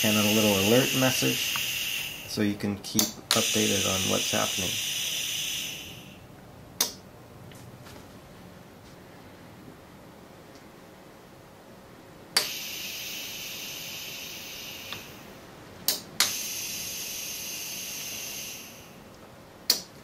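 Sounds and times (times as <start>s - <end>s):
compressed air hissing: 0.0s - 2.4s, 3.0s - 6.3s, 12.4s - 15.4s, 16.2s - 19.1s.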